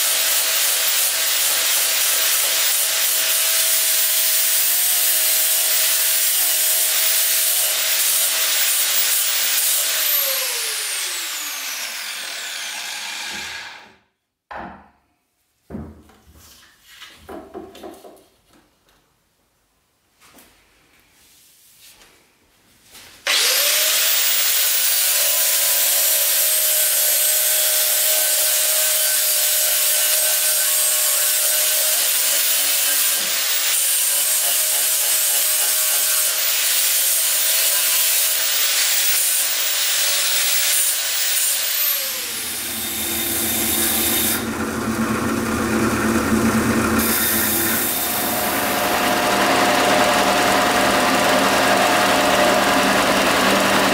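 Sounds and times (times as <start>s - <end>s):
angle grinder grinding metal: 0.0s - 14.0s, 23.3s - 53.9s
belt sander humming: 7.8s - 13.9s, 23.3s - 24.8s, 39.6s - 53.9s.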